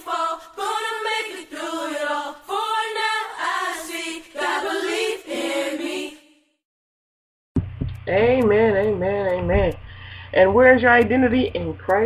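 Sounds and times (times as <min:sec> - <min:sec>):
choir singing: 0:00.0 - 0:06.6.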